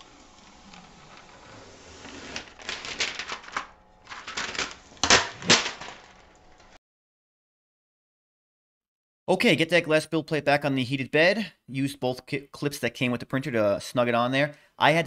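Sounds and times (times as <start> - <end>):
plastic film peeling crackle: 0.0 - 6.8.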